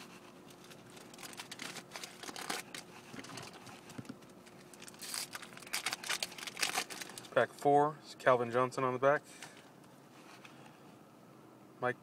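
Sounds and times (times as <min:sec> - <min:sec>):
foil wrapper tearing and crinkling: 0:00.5 - 0:07.4.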